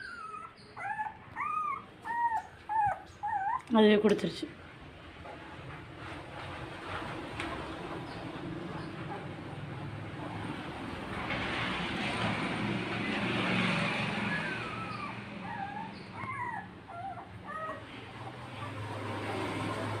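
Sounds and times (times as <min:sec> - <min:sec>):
puppies squeaking and whimpering: 0:00.0 - 0:03.9, 0:14.0 - 0:20.0.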